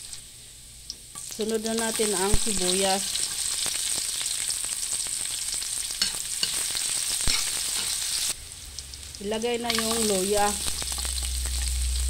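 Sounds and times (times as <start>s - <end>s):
garlic and onion sizzling in wok: 0.0s - 12.0s
metal spatula stirring: 7.3s - 8.0s.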